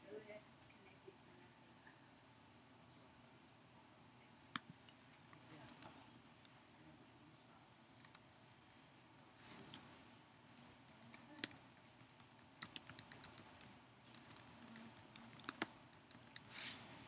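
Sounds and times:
faint keyboard typing: 0:04.9 - 0:07.2, 0:08.0 - 0:08.6, 0:09.4 - 0:16.6.

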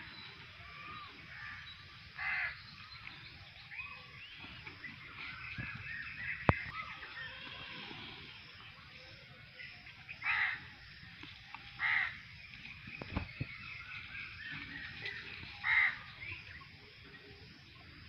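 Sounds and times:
small birds chirping: 0:00.0 - 0:07.4, 0:11.2 - 0:18.0
crow cawing: 0:02.2 - 0:02.5, 0:10.2 - 0:10.6, 0:11.8 - 0:12.2, 0:15.6 - 0:16.0.

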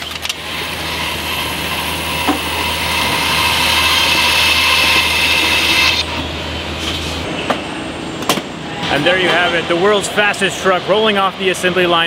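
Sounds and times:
machinery hiss with high whine: 0:00.4 - 0:08.2.

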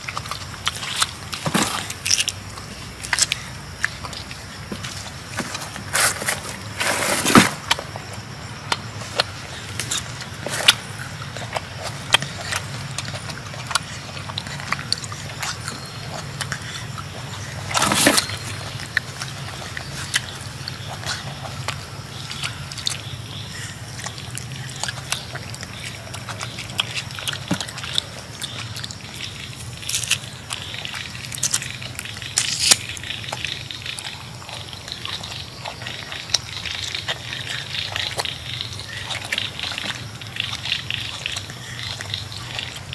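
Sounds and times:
monkey chewing fruit: 0:00.0 - 0:42.9
rustling bumps: 0:04.6 - 0:07.9.

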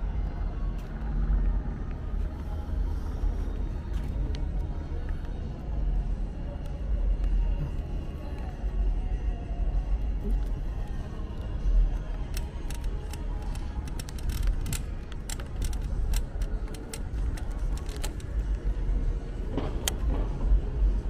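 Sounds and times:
light clicks and rattles: 0:10.2 - 0:18.8.

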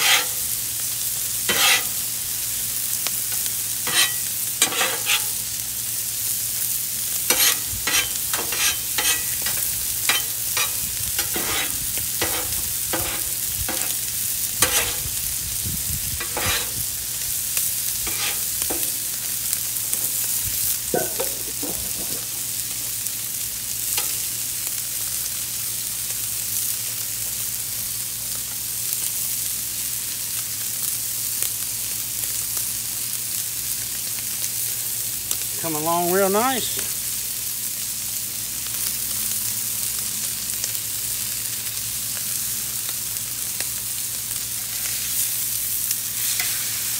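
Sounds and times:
spatula scraping griddle: 0:00.0 - 0:00.6, 0:01.4 - 0:02.1, 0:03.4 - 0:05.4, 0:07.2 - 0:15.2, 0:16.2 - 0:16.9, 0:17.9 - 0:19.3, 0:44.5 - 0:45.4, 0:46.2 - 0:46.9
meat and vegetables sizzling on griddle: 0:00.0 - 0:46.9.

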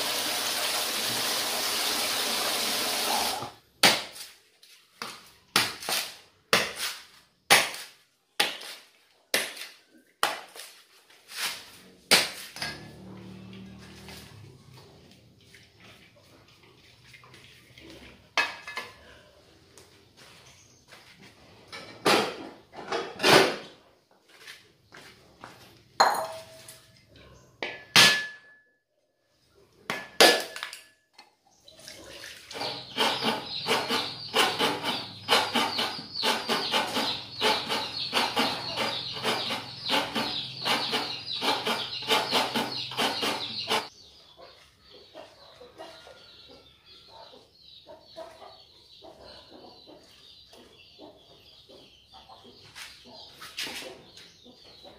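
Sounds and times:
pots clattering on concrete: 0:09.4 - 0:16.2, 0:17.0 - 0:19.3, 0:21.2 - 0:24.6, 0:25.4 - 0:28.6, 0:29.9 - 0:44.0.

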